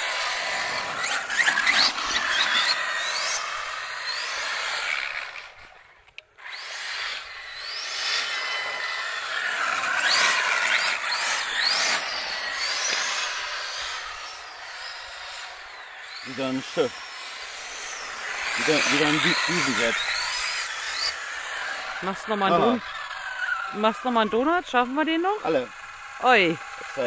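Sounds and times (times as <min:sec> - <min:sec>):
electric motor whining: 0:00.0 - 0:27.0.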